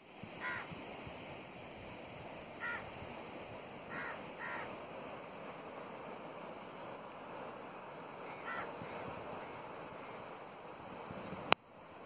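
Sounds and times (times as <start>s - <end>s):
steady background hiss: 0.0s - 12.0s
crow cawing: 0.4s - 0.7s, 2.6s - 2.9s, 3.9s - 4.7s, 8.3s - 8.8s.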